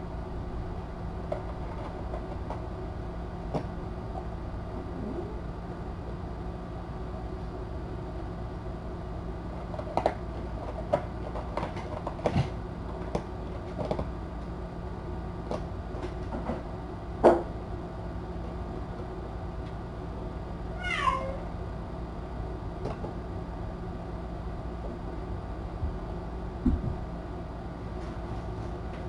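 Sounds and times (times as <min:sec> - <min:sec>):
steady low hum: 0:00.0 - 0:29.0
cat meow: 0:20.7 - 0:21.5.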